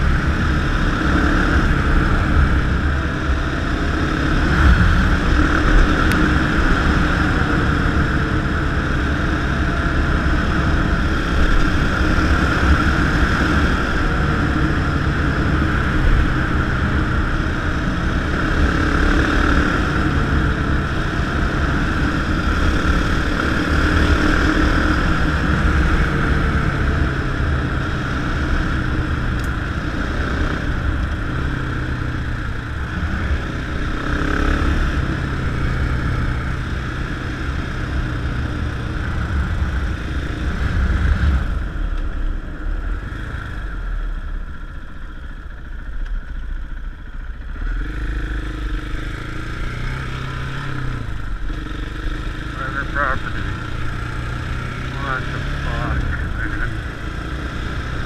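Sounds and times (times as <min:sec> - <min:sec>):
wind rushing over microphone: 0:00.0 - 0:43.8
motorcycle engine running: 0:00.0 - 0:58.0.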